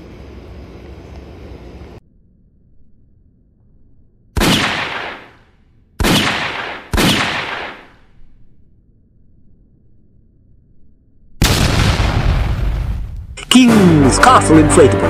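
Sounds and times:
loud bangs: 11.4s - 14.8s.

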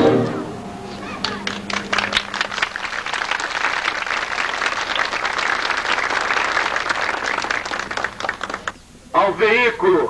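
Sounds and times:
crowd applauding: 0.8s - 8.8s.

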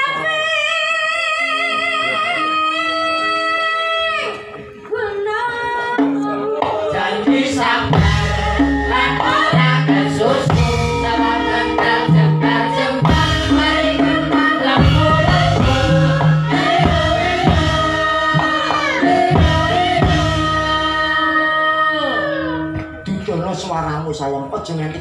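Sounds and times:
live band music with singing: 0.0s - 25.0s
low drum beat: 6.7s - 21.1s.

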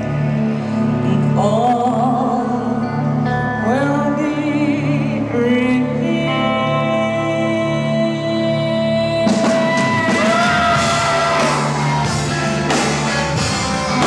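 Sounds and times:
live band playing: 0.0s - 14.0s
woman singing: 0.8s - 11.5s.

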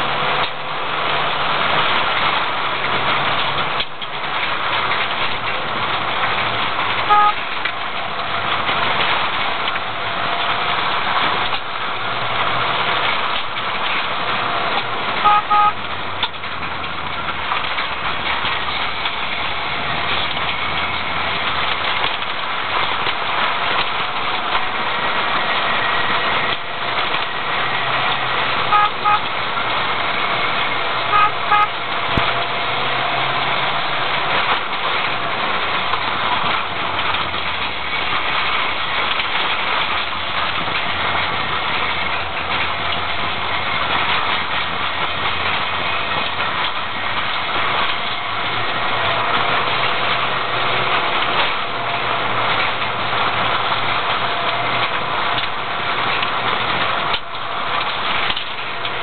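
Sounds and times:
car engine: 0.0s - 59.0s
road noise: 0.0s - 59.0s
short double beeps: 15.3s - 15.8s.

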